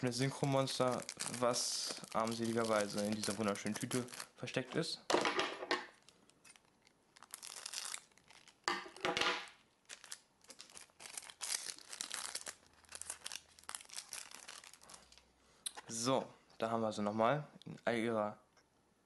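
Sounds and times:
plastic wrapper tearing and crinkling: 0:00.0 - 0:04.6, 0:05.9 - 0:15.3.

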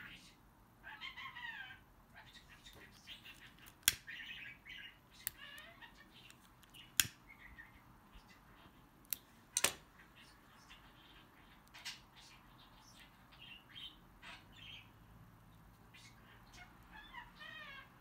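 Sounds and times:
faint high chirping calls: 0:00.0 - 0:09.0, 0:09.9 - 0:18.0.

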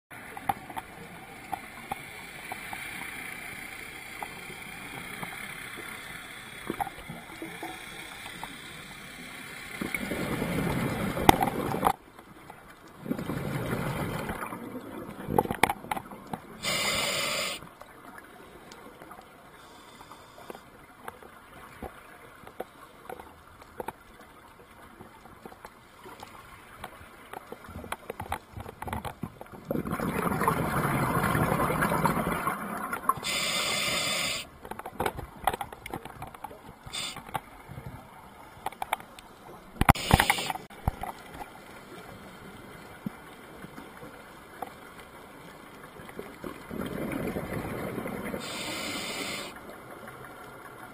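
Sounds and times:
faint clicks: 0:00.2 - 0:10.0, 0:32.9 - 0:46.6
bubbling exhale: 0:16.6 - 0:17.6, 0:33.2 - 0:34.5, 0:48.4 - 0:49.6
regulator inhaling hiss: 0:16.6 - 0:17.6, 0:33.2 - 0:34.5, 0:36.9 - 0:37.3, 0:39.9 - 0:40.7, 0:48.4 - 0:49.6.

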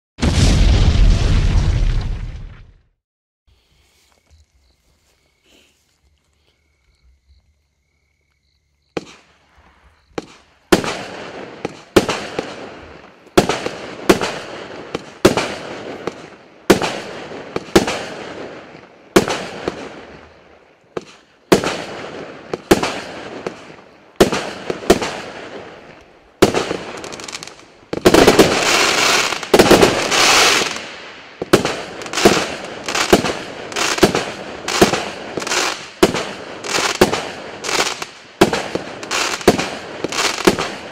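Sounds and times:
firework crackling: 0:21.0 - 0:40.9
firework shots banging: 0:26.4 - 0:40.9.

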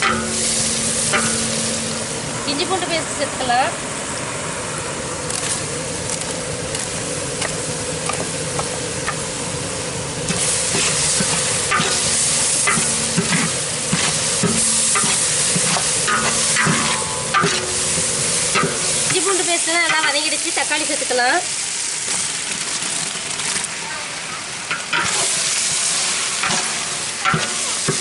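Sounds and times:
onions sizzling in oil: 0:00.0 - 0:28.0.

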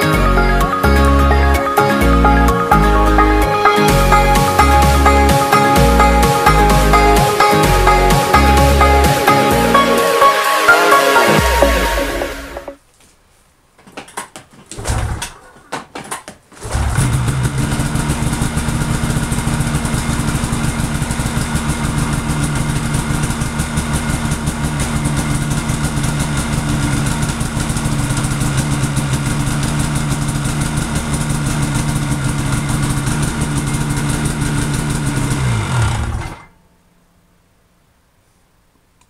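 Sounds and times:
snowmobile engine idling: 0:16.6 - 0:36.5.

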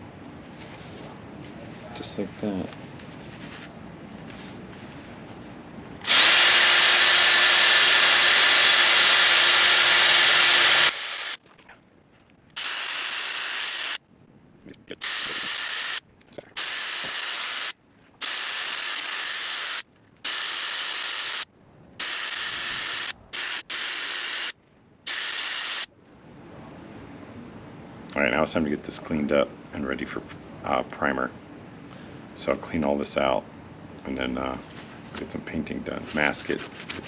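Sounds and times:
drill spinning wire brush: 0:06.0 - 0:11.4, 0:12.6 - 0:14.0, 0:15.0 - 0:24.5, 0:25.1 - 0:25.9.

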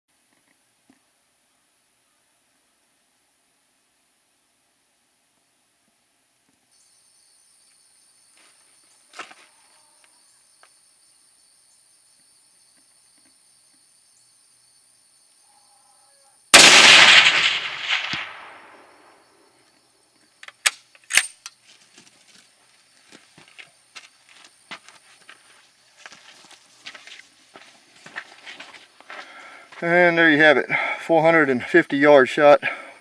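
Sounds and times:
rifle shot with echo: 0:16.6 - 0:19.2.

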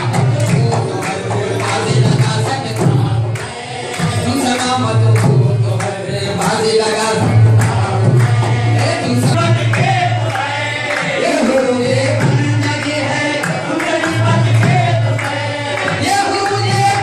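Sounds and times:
hand-claps: 0:00.0 - 0:17.0
men singing together: 0:00.0 - 0:17.0
percussion beat: 0:00.0 - 0:17.0.

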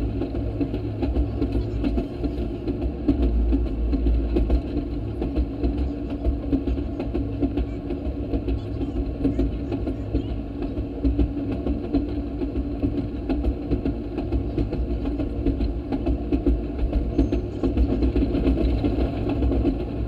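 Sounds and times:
rail motorcar engine running: 0:00.0 - 0:20.0.

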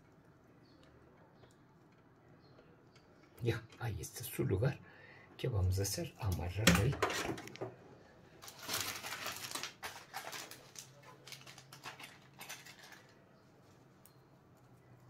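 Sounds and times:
cables rustling and clicking: 0:00.0 - 0:04.3, 0:06.3 - 0:15.0
faint steady hum: 0:00.0 - 0:10.0.

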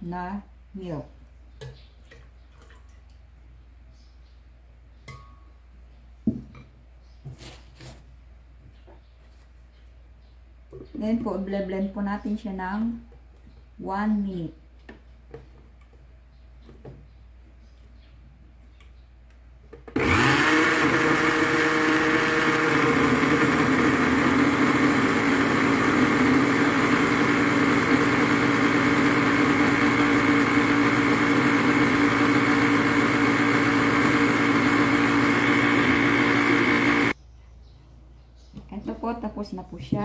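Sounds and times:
blender motor running: 0:20.0 - 0:37.2.

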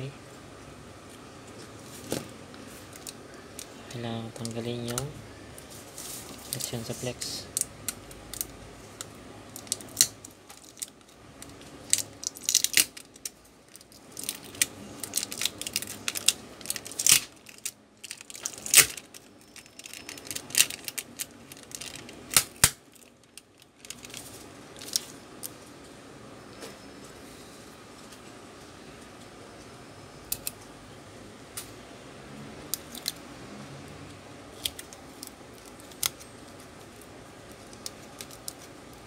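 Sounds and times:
plastic film crinkling: 0:01.5 - 0:25.6, 0:34.6 - 0:39.0.

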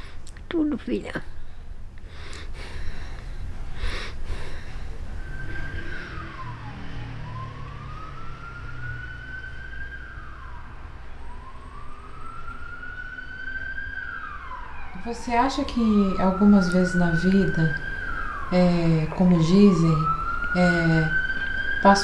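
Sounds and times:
low steady rumble: 0:00.0 - 0:06.5
emergency vehicle siren wailing: 0:02.5 - 0:22.0.

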